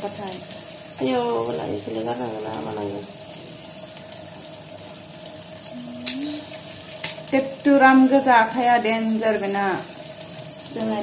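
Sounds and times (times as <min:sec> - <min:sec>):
tap water running into colander: 0:00.0 - 0:11.0.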